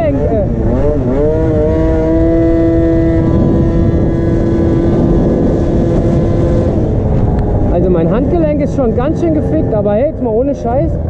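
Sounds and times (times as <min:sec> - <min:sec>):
scooter engine at high revs: 0:00.0 - 0:11.0.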